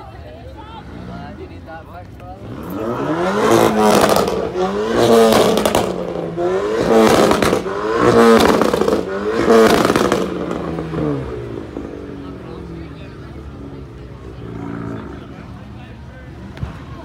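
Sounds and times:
car engine revving: 0.6 - 17.0.

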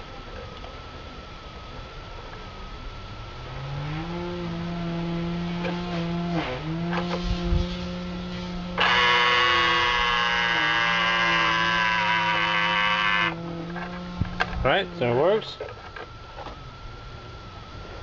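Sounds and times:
loud high-pitched buzz: 3.1 - 18.0
mirror motor humming: 3.1 - 18.0.

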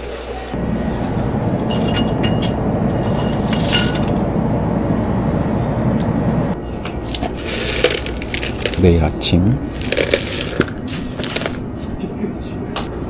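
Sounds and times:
loud rumbling noise: 0.6 - 6.6, 7.3 - 11.7
glass bottles clinking: 1.7 - 4.1, 7.4 - 8.9.

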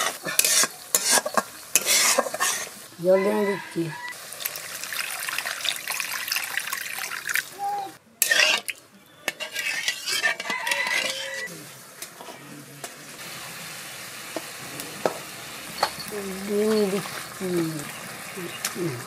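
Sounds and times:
wooden spatula scraping metal pan: 0.0 - 2.8, 8.2 - 8.7, 9.3 - 11.5
spice paste sizzling and crackling: 0.0 - 6.6, 9.4 - 19.0.

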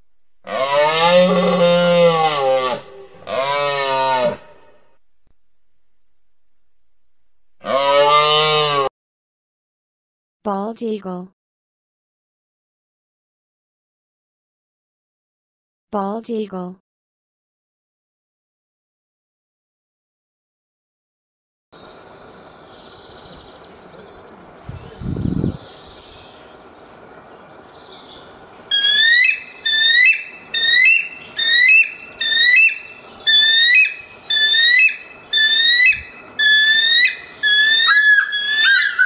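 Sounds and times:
eagle piping calls: 28.7 - 39.0.

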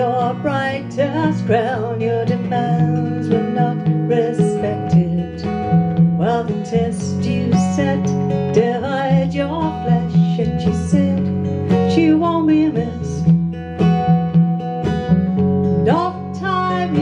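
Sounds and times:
electric bass guitar: 0.0 - 17.0
strummed acoustic guitar: 0.0 - 17.0
woman singing folk song: 0.0 - 17.0.

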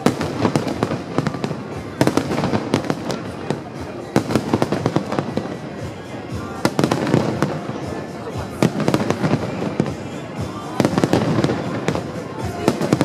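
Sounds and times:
fireworks bangs: 0.0 - 13.0
fireworks crackling: 0.0 - 13.0.

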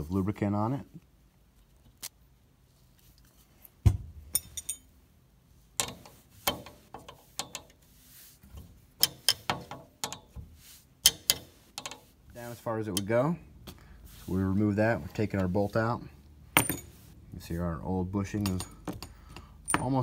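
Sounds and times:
wrench clicking on metal: 5.8 - 7.8, 9.0 - 10.3, 11.0 - 12.1.

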